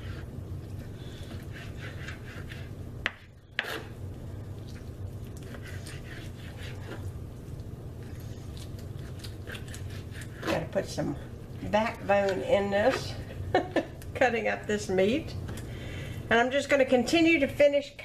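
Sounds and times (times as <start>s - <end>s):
steady low hum: 0.0s - 18.0s
knife slicing chicken: 1.2s - 3.9s, 5.4s - 7.0s.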